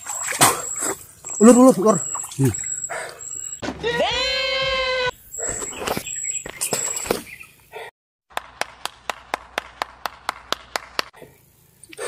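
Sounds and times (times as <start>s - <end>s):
person clapping hands: 8.3s - 11.2s.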